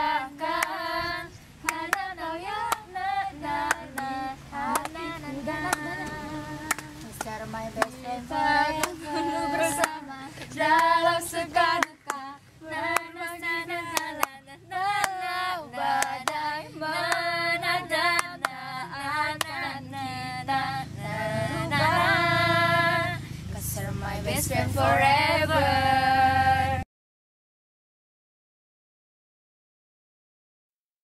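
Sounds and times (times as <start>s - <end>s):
girls singing together: 0.0s - 26.8s
hand claps: 1.6s - 2.0s, 4.7s - 5.0s, 5.6s - 8.0s, 8.8s - 9.0s, 9.8s - 10.0s, 11.8s - 12.3s, 13.9s - 14.4s, 17.0s - 17.3s, 18.1s - 18.6s.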